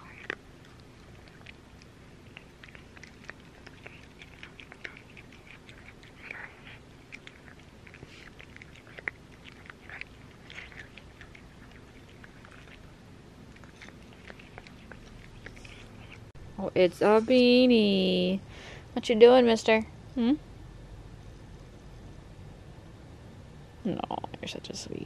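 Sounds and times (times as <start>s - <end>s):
cat chewing with clicks: 0.0s - 16.3s.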